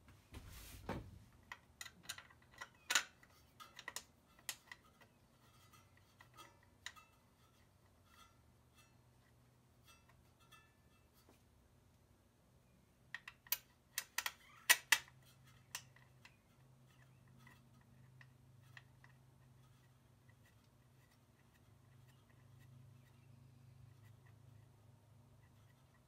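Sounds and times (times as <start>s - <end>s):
tools and bolts clinking: 1.4s - 9.0s.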